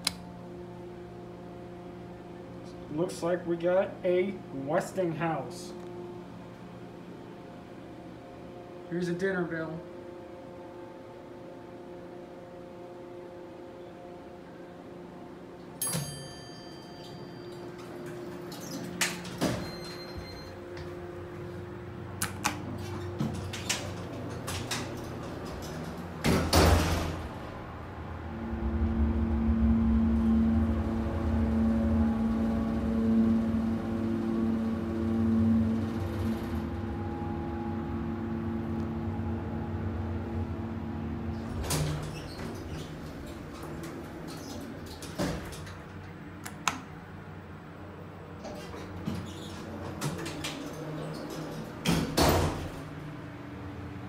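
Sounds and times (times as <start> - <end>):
elevator car humming: 0.0 - 54.0
elevator doors sliding shut: 16.8 - 46.4, 48.2 - 53.9
elevator stopping thump: 16.9 - 21.2, 22.5 - 46.1, 48.4 - 53.1.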